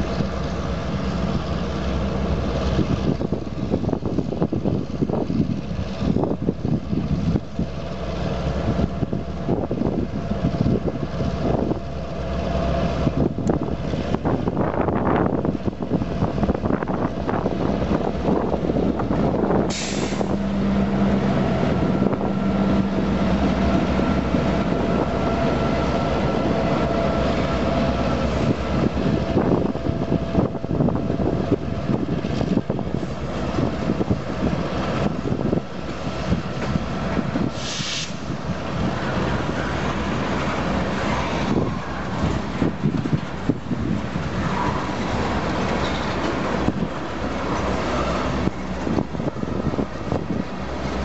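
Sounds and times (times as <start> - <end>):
diesel locomotive engines drumming: 0.0 - 51.0
freight cars rumbling on rails: 0.0 - 51.0
short hiss: 19.7 - 20.4, 37.5 - 38.3.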